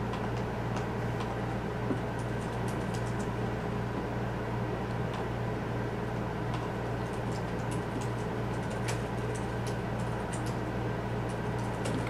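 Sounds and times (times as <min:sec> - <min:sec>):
steady low hum: 0:00.0 - 0:12.0
solder ticking and crackling: 0:02.2 - 0:03.3, 0:06.5 - 0:10.6.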